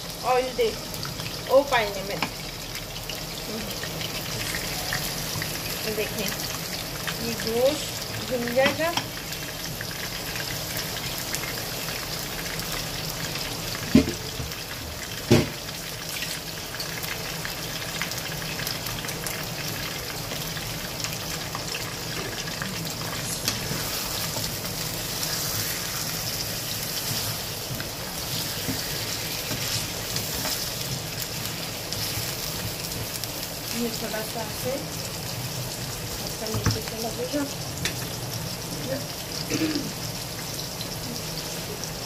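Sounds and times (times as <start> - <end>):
meat sizzling in hot oil: 0.0 - 42.0.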